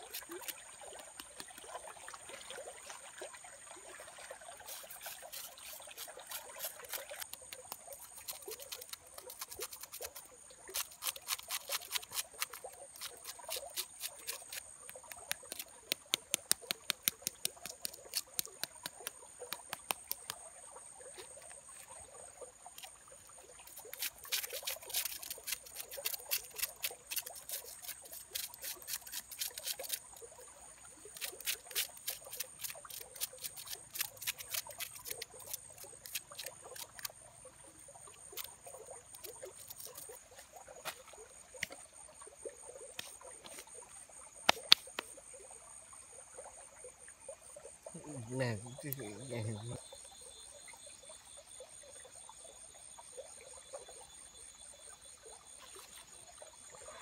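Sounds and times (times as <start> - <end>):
crackling clicks of peeling skin: 0.0 - 1.6, 5.1 - 20.4, 23.7 - 30.0, 31.2 - 37.1, 39.2 - 40.1, 44.4 - 45.1.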